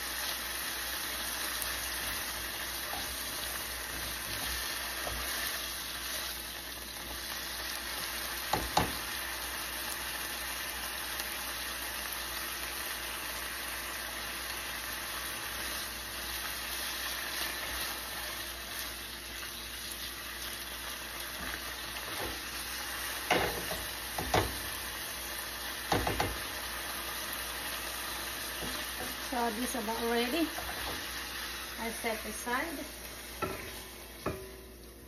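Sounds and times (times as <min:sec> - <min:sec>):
meat sizzling in frying pan: 0:00.0 - 0:35.0
spatula scraping pan: 0:33.4 - 0:34.6.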